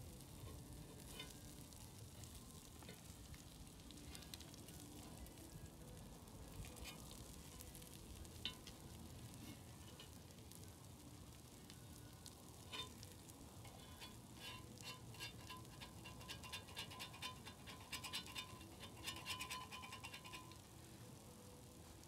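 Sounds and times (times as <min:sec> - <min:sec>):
meat sizzling on griddle: 0:00.0 - 0:22.0
knife scraping griddle: 0:13.6 - 0:20.6.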